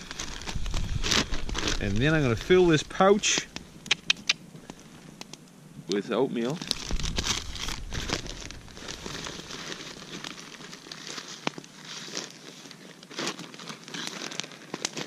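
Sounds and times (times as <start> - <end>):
plastic bag crinkling: 0.0 - 3.5, 6.4 - 15.0
sharp click: 3.8 - 4.4.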